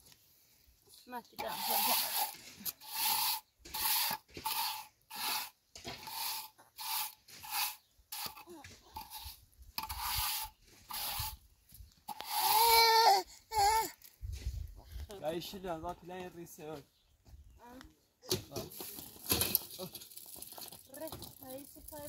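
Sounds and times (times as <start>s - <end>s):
trowel scraping mortar: 1.3s - 13.9s
baby's voice: 12.4s - 14.0s.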